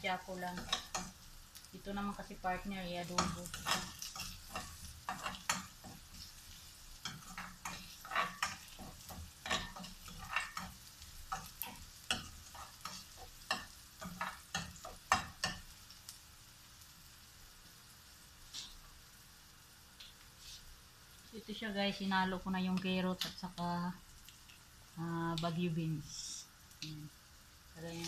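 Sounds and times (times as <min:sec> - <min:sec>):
frying sizzle: 0:00.0 - 0:28.0
spoon scraping metal frying pan: 0:03.0 - 0:06.4, 0:07.0 - 0:15.6.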